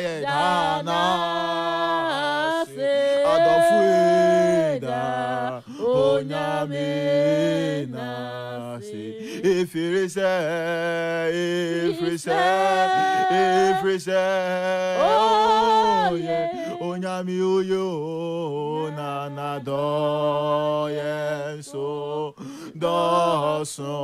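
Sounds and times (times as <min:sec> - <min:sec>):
man and woman singing unaccompanied: 0:00.0 - 0:24.0.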